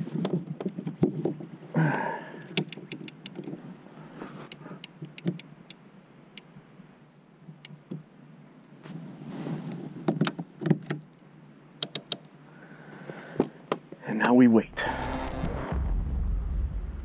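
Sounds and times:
thud: 15.4s - 17.0s.

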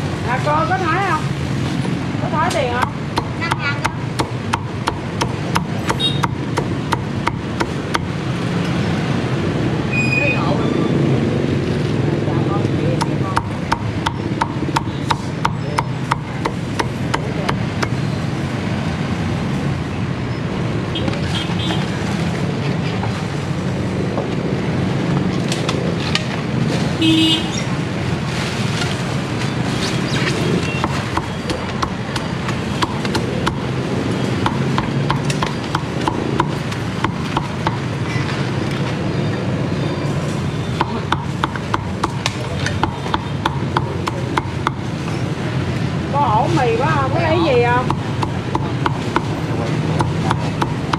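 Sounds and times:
street traffic: 0.0s - 50.9s
cleaver chopping on wooden block: 2.8s - 8.2s, 13.0s - 18.0s, 30.8s - 33.7s, 34.3s - 37.9s, 40.8s - 44.9s, 47.8s - 50.9s.

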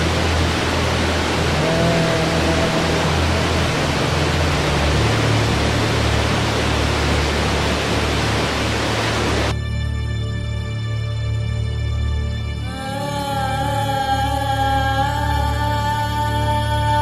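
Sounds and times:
waterfall rushing over rock: 0.0s - 9.5s
soft background music: 0.0s - 17.0s.

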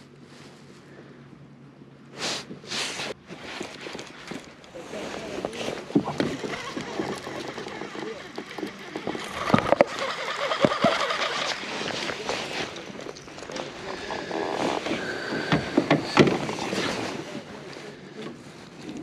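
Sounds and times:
fishing reel clicking: 6.4s - 11.6s.

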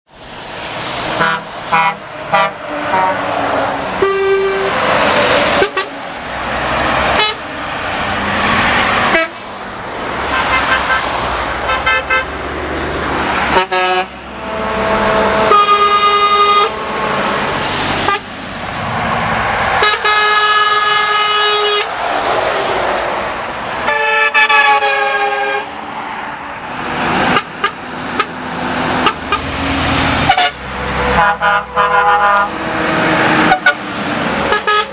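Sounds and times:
diesel engines and tyres rushing: 0.1s - 34.9s
truck horns blasting: 1.0s - 6.2s, 6.8s - 7.7s, 8.8s - 9.5s, 10.2s - 12.4s, 13.4s - 18.4s, 19.8s - 22.0s, 23.7s - 25.8s, 27.2s - 34.9s.

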